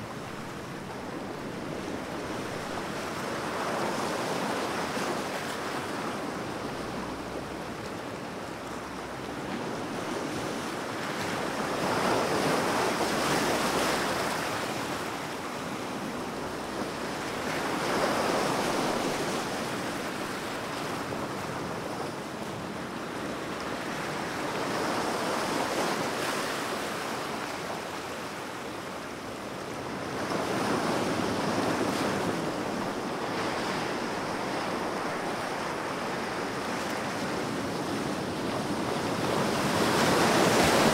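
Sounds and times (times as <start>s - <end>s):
ocean surf washing: 0.0s - 40.9s.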